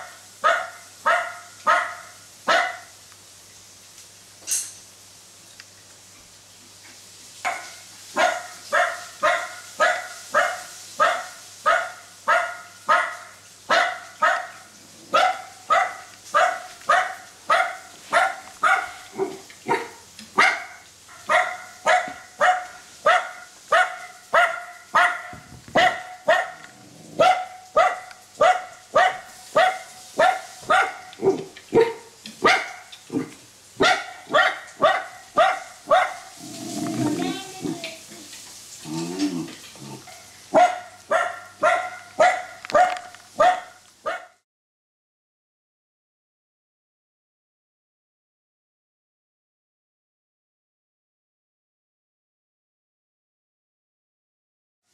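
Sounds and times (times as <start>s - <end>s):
recorded dog barking through speaker: 0.0s - 3.0s, 7.4s - 37.8s, 39.9s - 44.4s.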